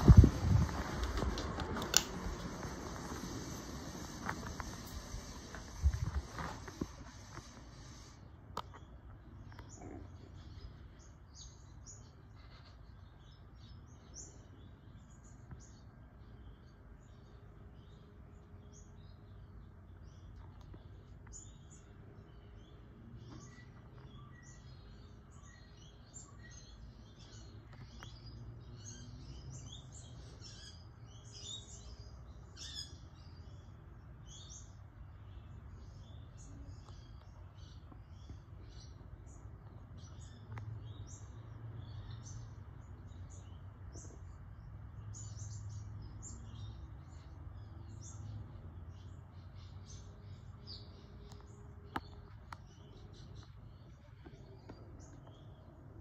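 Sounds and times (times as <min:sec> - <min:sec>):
ceiling fan motor hum: 0:00.0 - 0:08.2.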